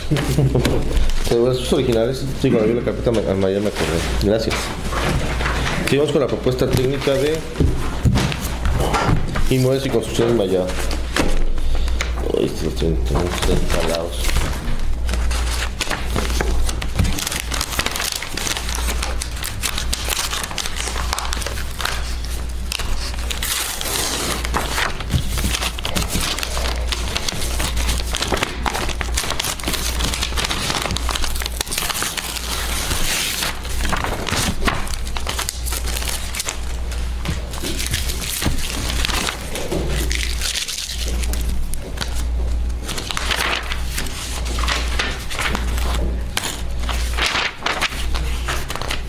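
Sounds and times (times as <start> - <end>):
paper rustling and crinkling: 0.0 - 49.0.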